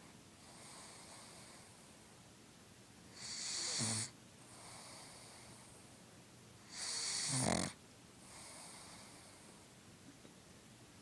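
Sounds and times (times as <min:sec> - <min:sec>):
quiet breaths: 0:00.0 - 0:02.3, 0:03.0 - 0:10.3
dog snoring: 0:00.4 - 0:01.8, 0:03.2 - 0:05.8, 0:06.7 - 0:09.6.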